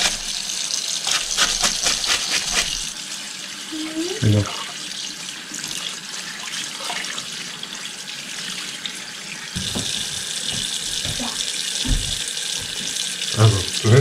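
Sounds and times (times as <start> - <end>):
tap water splashing into sink: 9.5 - 14.0
dull knocks on glass: 9.6 - 12.8.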